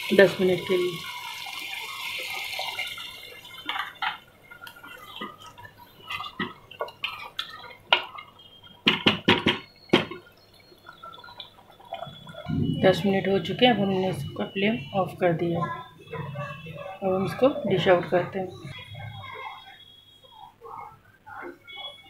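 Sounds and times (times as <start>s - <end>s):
spoon knocking metal pot: 8.8s - 10.3s.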